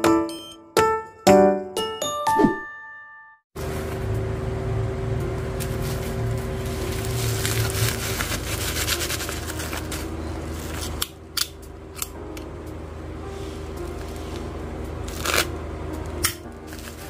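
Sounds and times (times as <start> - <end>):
bubble wrap crinkling: 5.6 - 11.1, 13.9 - 15.5, 16.4 - 17.0.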